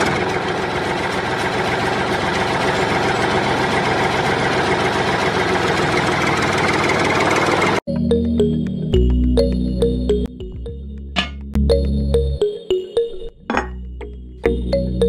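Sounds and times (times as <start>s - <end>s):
engine idling: 0.0s - 7.8s.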